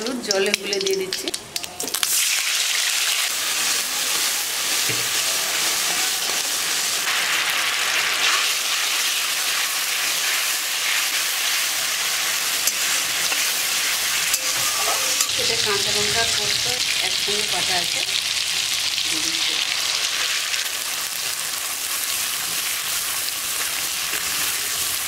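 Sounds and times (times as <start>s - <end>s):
spatula clicking against pan: 0.3s - 1.7s
paste sizzling in hot oil: 1.9s - 25.0s.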